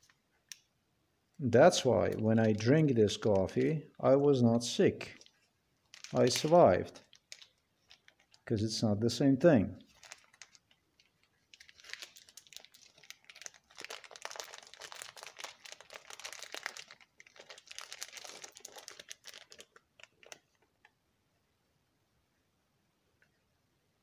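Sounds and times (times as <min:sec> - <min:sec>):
foil packet crinkling: 0:01.8 - 0:04.0, 0:04.6 - 0:08.5, 0:09.8 - 0:20.8.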